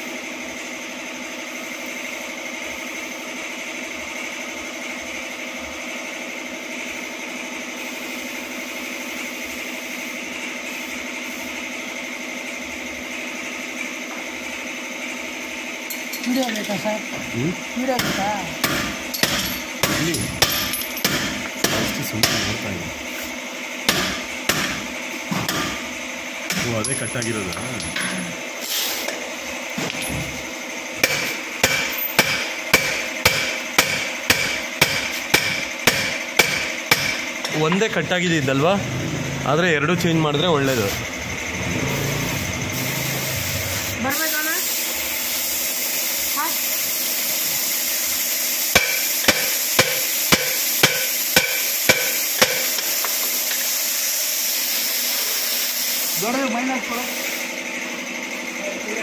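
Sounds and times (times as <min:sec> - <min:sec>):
hammer striking metal: 0:18.0 - 0:22.6, 0:23.9 - 0:25.9, 0:26.5 - 0:28.2, 0:31.0 - 0:37.6, 0:48.7 - 0:52.9.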